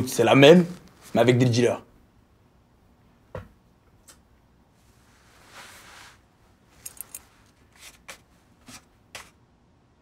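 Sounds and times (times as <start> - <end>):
soft scraping rustle: 4.8 - 9.4.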